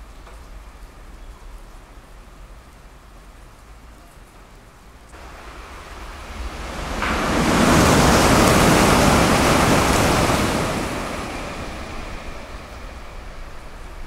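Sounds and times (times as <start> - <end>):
heavy rain: 0.0 - 14.0
train passing at high speed: 5.2 - 14.0.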